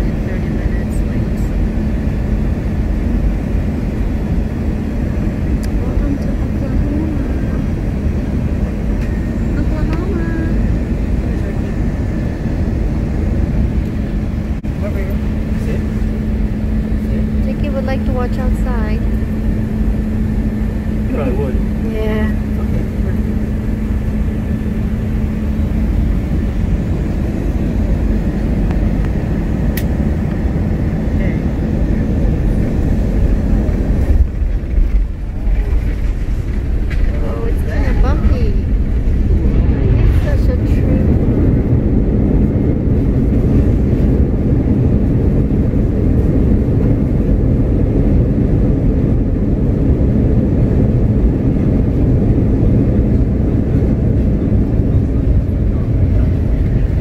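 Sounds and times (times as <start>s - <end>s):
airliner engines rumbling: 0.0s - 57.0s.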